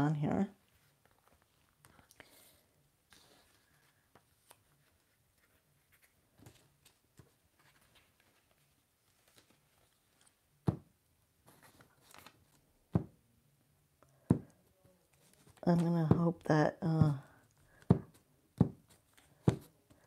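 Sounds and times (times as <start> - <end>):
paper rustling: 3.1 - 10.4, 11.4 - 12.7, 15.0 - 16.0.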